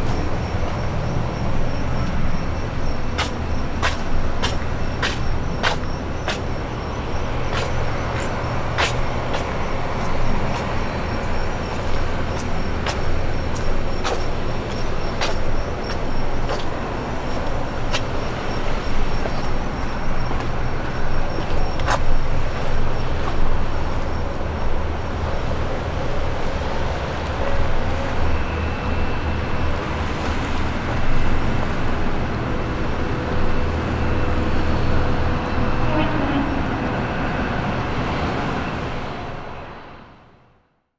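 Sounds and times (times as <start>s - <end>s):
low engine hum: 0.0s - 40.4s
outdoor noise: 0.0s - 40.9s.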